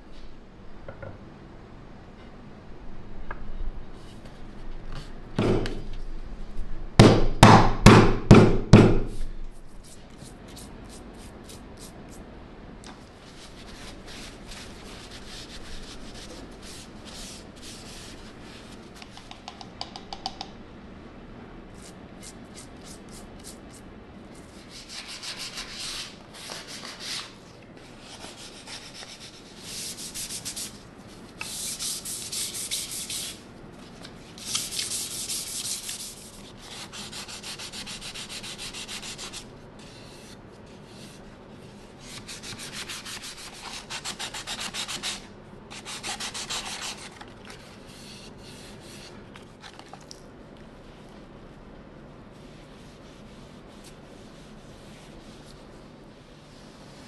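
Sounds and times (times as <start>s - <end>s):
sandpaper rubbing wood: 28.2s - 30.7s, 31.4s - 33.4s, 34.4s - 39.4s, 42.0s - 47.0s.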